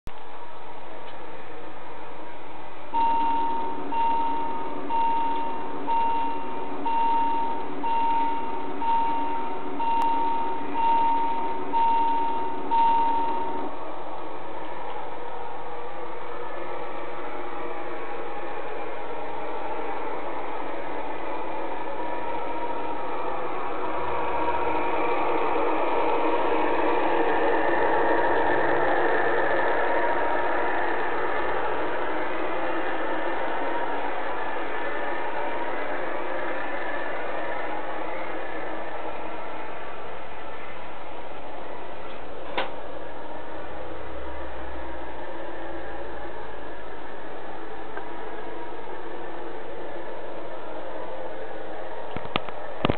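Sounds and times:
wheels rolling on rails: 0.1 - 52.9
electronic warning beeps: 2.9 - 13.7
model train motor whirring: 3.3 - 52.9.

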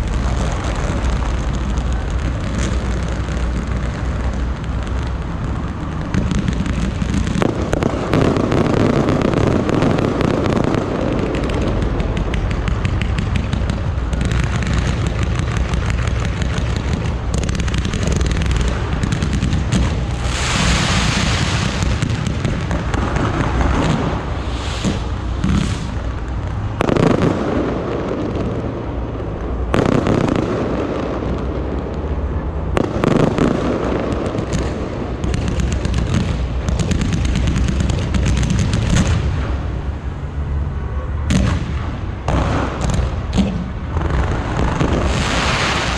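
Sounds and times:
loud hissing rush: 0.0 - 29.0, 43.6 - 45.9
fireworks bangs and crackles: 0.0 - 45.9.

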